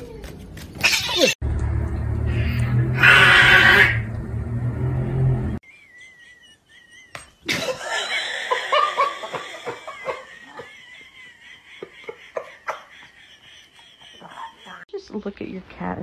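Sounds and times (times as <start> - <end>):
person laughing: 0.8 - 1.4, 5.8 - 14.8.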